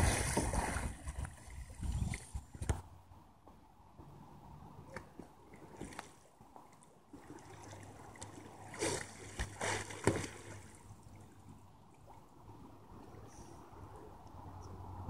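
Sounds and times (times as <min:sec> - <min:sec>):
water splashing: 0:00.0 - 0:02.8, 0:04.8 - 0:13.0.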